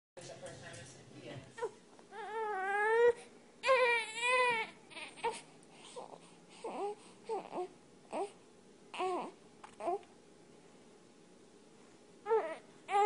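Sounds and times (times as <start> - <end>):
infant crying: 1.6 - 10.1, 12.2 - 13.0.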